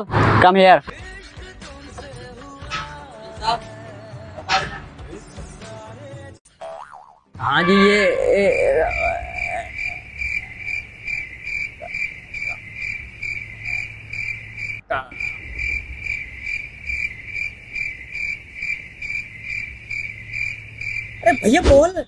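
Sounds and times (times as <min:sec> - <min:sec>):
cricket chirping: 0:07.6 - 0:22.0.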